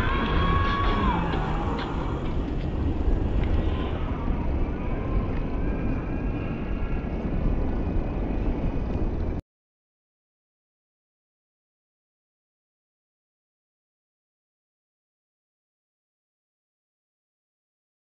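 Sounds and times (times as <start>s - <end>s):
road rumble: 0.0s - 9.4s
wind rushing: 0.0s - 9.4s.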